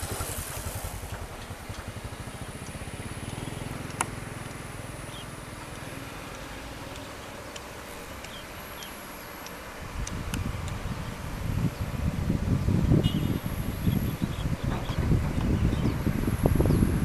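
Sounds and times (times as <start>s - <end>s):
excavator diesel engine running: 0.0s - 12.5s.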